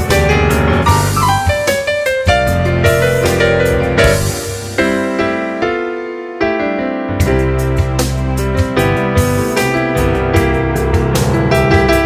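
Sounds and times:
piano with synth backing: 0.0 - 12.0
sustained bass notes: 0.1 - 5.1.

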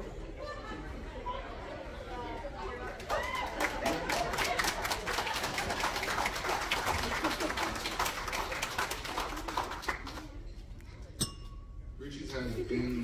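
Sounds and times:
crowd clapping: 2.8 - 10.5
people laughing: 3.3 - 5.4, 6.8 - 8.3.

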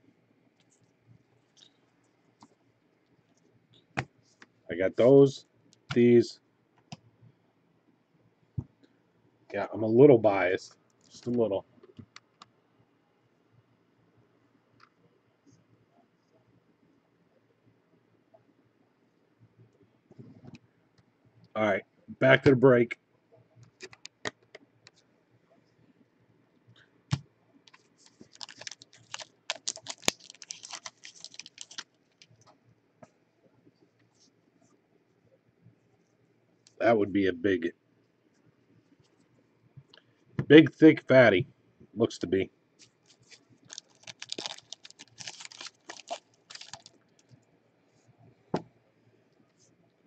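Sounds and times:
foil wrapper tearing and crinkling: 27.7 - 32.2, 43.0 - 47.2.

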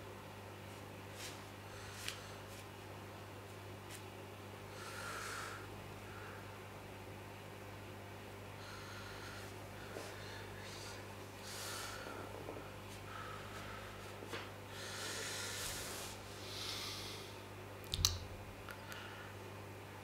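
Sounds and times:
steady low hum: 0.0 - 20.0
soft breath-like hisses: 4.7 - 6.4, 8.6 - 17.4.

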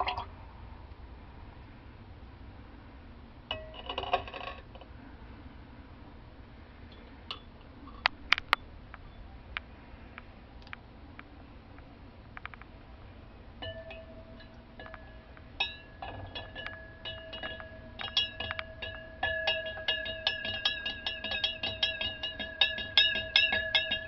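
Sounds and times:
spoon clinking glass beaker: 13.6 - 24.0.

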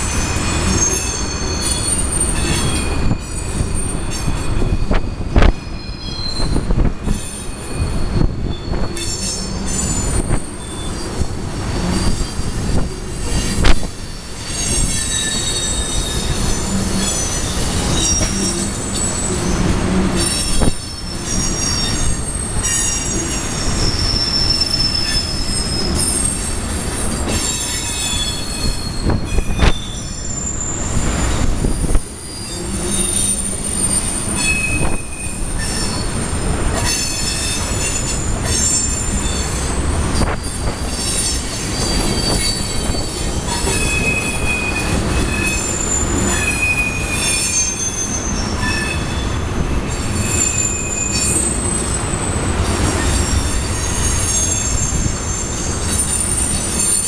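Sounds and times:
train wheels screeching: 0.0 - 57.0
wheels rumbling on rails: 0.0 - 57.0.

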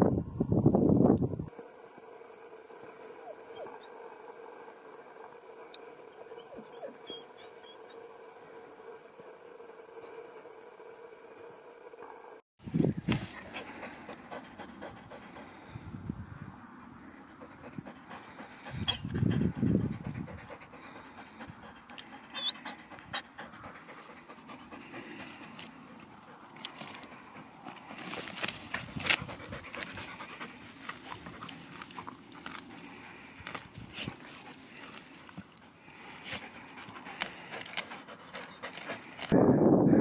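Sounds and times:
dog panting hard: 13.2 - 15.8, 17.2 - 33.0, 34.0 - 39.4.

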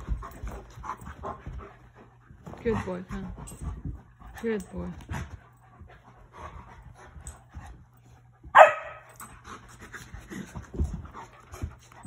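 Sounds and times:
dogs panting: 0.0 - 12.0
dogs scuffling: 0.0 - 12.0
dog barking: 8.6 - 9.0.

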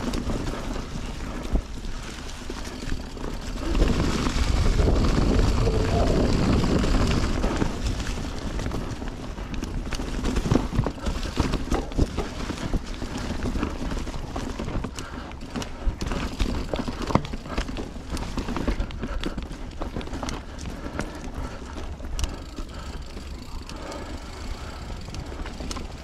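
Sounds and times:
bike rattling over bumps: 0.0 - 26.0
bike tyres rolling on dirt: 0.0 - 26.0
low rumble: 3.6 - 7.5.

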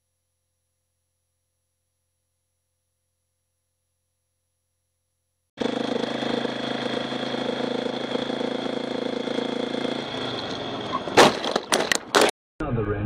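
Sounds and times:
motorcycle engine running: 5.6 - 11.0.

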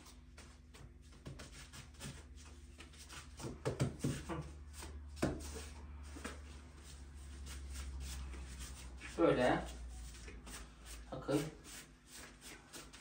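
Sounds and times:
hands rubbing dough: 0.0 - 13.0
steady low hum: 0.0 - 13.0
dull pats and knocks on dough: 0.1 - 5.6.

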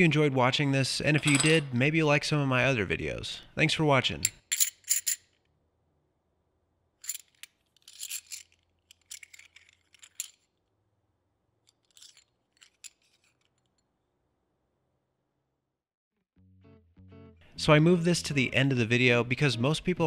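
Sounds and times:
silver coins clinking: 4.4 - 5.4, 7.0 - 10.5, 11.7 - 13.7.

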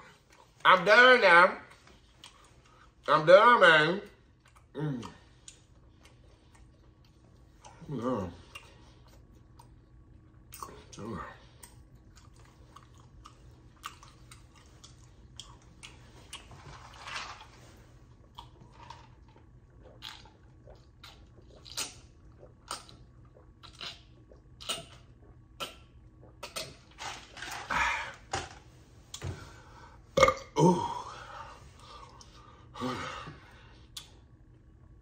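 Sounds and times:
soft chewing clicks: 1.8 - 3.0, 4.4 - 16.5.

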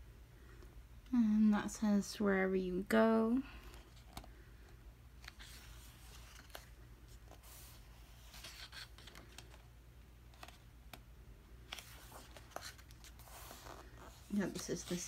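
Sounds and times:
low steady hum: 0.0 - 15.0
page turning rustle: 5.2 - 9.7, 10.3 - 11.0, 11.6 - 15.0.

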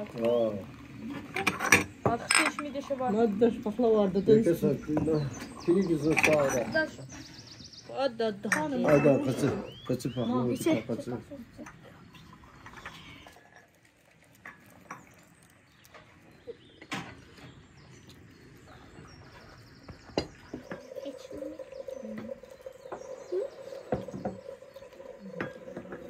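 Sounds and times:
tea glasses and plates clinking: 1.3 - 3.2, 4.6 - 7.2, 8.4 - 10.0, 20.2 - 26.0.

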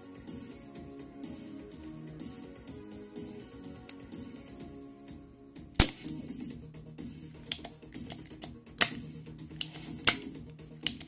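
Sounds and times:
background music: 0.0 - 11.0
desoldering pump clicking: 7.4 - 11.0.

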